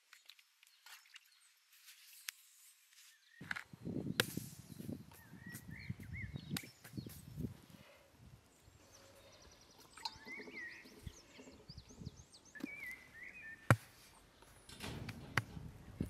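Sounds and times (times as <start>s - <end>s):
rustle: 0.0s - 3.4s
small birds chirping: 0.0s - 16.0s.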